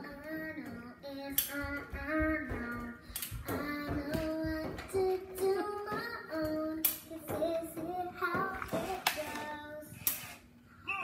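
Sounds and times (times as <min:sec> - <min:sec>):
child singing: 0:00.0 - 0:10.2.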